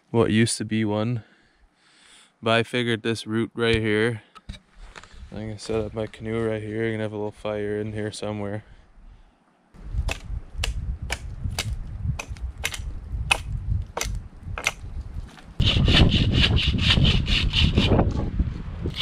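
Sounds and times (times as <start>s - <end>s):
dry wood snapping: 10.0s - 15.5s
rasping on wood: 15.6s - 18.0s.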